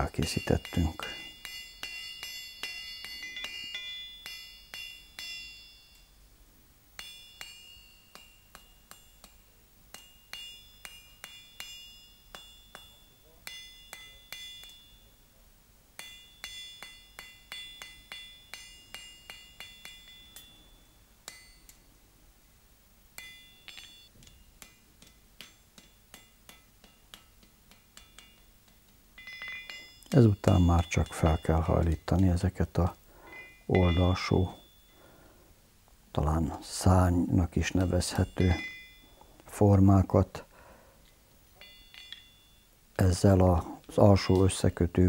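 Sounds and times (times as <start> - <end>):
hammer striking iron on anvil: 0.2 - 6.1, 7.0 - 15.2, 16.0 - 21.8, 23.2 - 34.9, 37.7 - 39.2, 41.6 - 42.6.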